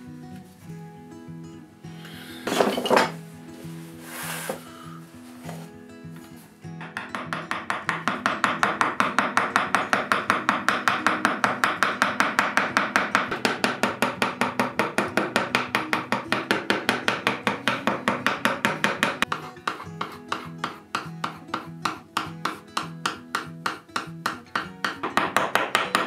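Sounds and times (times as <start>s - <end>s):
wooden mallet tapping a gouge: 6.8s - 26.0s.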